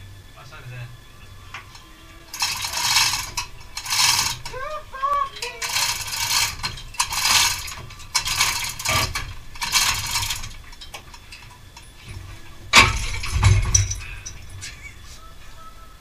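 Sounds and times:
ratchet spanner rasping: 1.5s - 14.8s
heavy thud: 12.1s - 14.7s.

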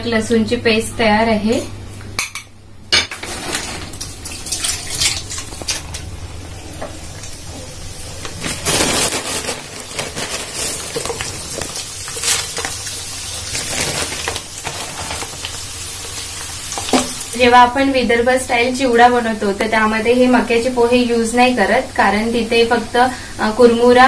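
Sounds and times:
frying in hot oil: 3.1s - 24.0s
oil crackling: 3.6s - 17.5s.

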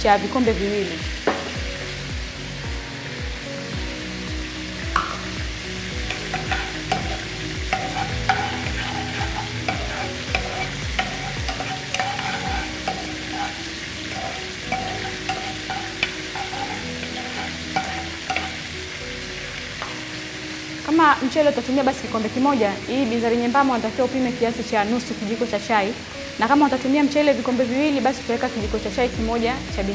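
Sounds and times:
frying sizzle: 0.0s - 29.9s
spatula scraping frying pan: 5.9s - 18.8s.

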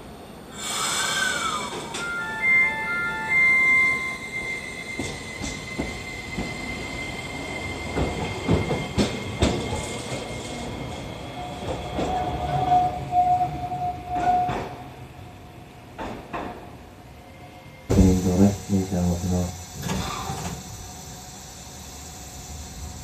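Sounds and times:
tram running on track: 0.0s - 23.0s
steady high tone: 1.2s - 7.8s.

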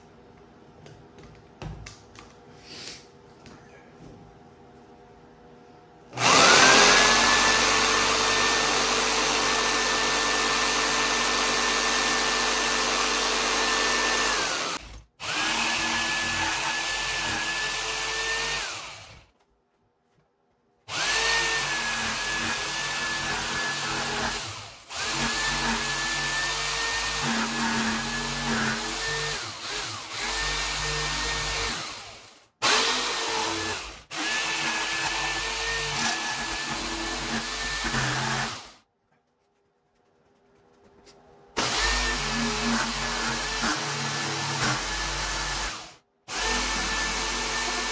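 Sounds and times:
electric jigsaw cutting: 6.2s - 19.2s, 20.9s - 38.8s, 41.6s - 47.9s.

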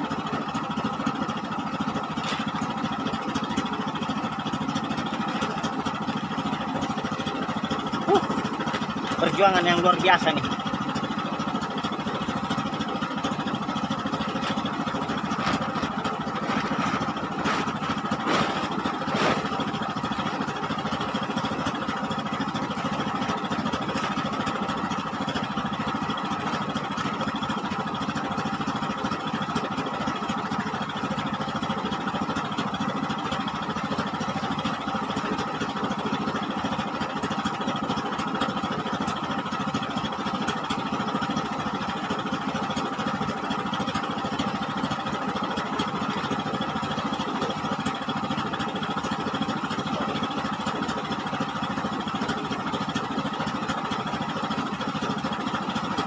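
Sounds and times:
boat engine drone: 0.0s - 56.0s.

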